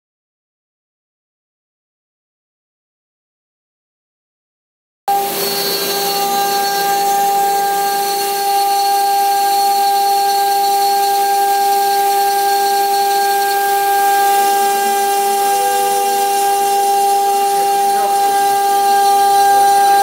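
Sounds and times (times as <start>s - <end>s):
router spindle cutting stone: 5.1s - 20.0s.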